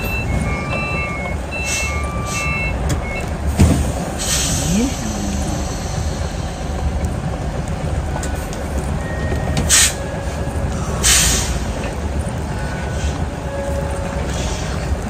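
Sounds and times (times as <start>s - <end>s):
truck diesel engine running: 0.0s - 15.0s
air brake hisses: 4.2s - 6.8s, 11.0s - 11.6s.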